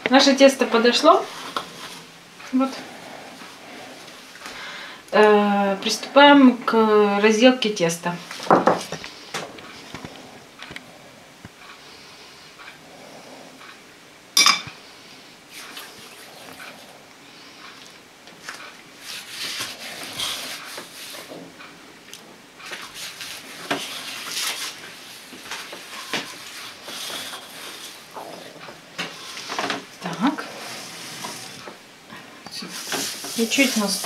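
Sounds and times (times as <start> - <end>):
knife clinking on plate: 14.4 - 14.7
dough squishing and rustling: 17.8 - 34.0.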